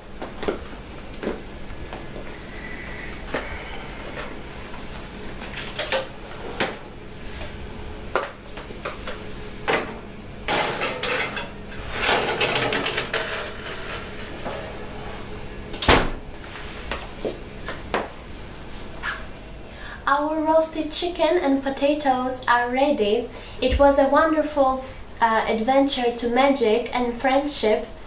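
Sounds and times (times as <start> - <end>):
metal tray scraping and clattering: 10.5 - 14.8
oven door shutting: 15.7 - 16.3.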